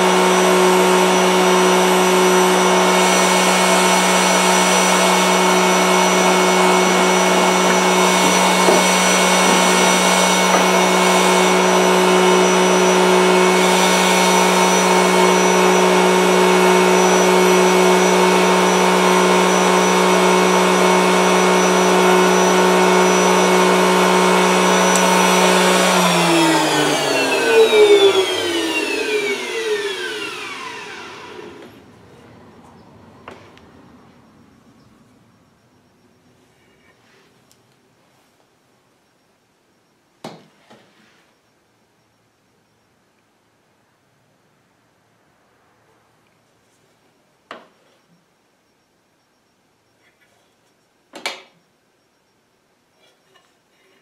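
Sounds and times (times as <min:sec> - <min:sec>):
carving machine motor humming: 0:00.0 - 0:31.8.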